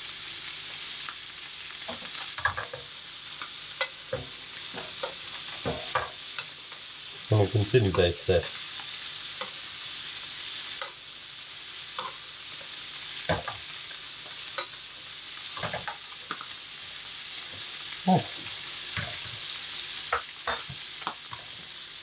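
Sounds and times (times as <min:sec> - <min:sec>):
fish sizzling in butter: 0:00.0 - 0:22.0
spoon knocking and scraping pan: 0:01.9 - 0:06.9, 0:12.0 - 0:14.8, 0:15.5 - 0:16.4, 0:18.9 - 0:19.5, 0:20.1 - 0:21.7.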